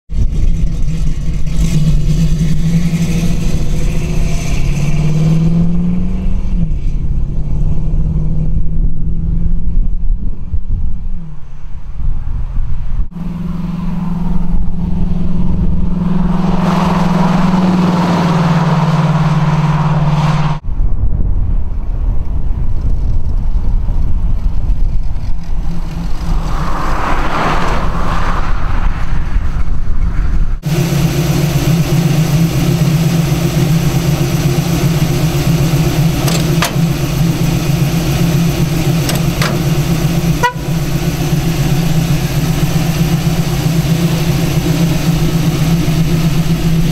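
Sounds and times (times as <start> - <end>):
car engine idling: 0.1 - 7.5, 30.6 - 46.9
car exhaust drone: 0.1 - 46.9
car driving past: 13.1 - 20.6, 25.6 - 29.7.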